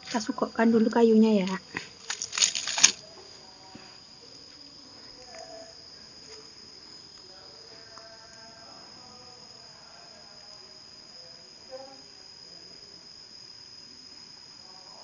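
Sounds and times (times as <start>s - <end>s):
faint low background noise: 0.0s - 15.0s
firewood scraping and crackling: 1.4s - 3.0s.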